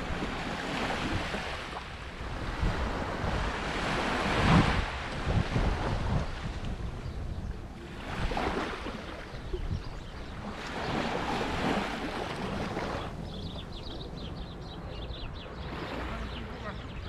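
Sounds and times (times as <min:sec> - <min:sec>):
small waves washing on sand: 0:00.0 - 0:07.0, 0:07.7 - 0:09.6, 0:10.2 - 0:13.2
wind rumbling on microphone: 0:00.0 - 0:17.0.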